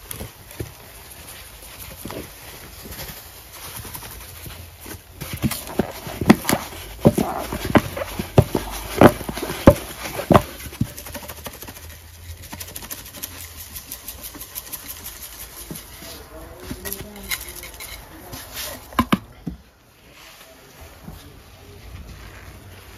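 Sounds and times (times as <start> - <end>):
cardboard canister tapping: 5.2 - 11.9, 18.9 - 19.6
fine powder crackle: 19.9 - 22.9.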